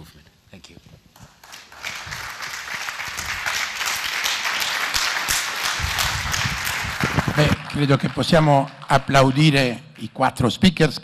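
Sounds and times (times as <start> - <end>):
audience applauding: 1.2 - 9.7.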